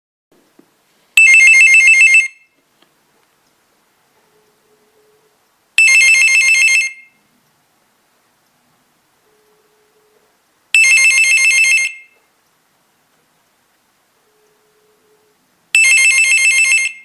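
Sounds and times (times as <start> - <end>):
telephone electronic ringer ringing: 1.2 - 2.5, 4.6 - 7.2, 10.8 - 12.2, 14.2 - 17.0.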